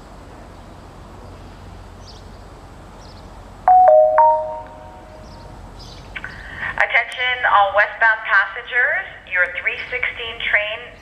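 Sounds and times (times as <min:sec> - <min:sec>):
outdoor background hum: 0:00.0 - 0:11.0
three-tone public address chime: 0:03.7 - 0:05.1.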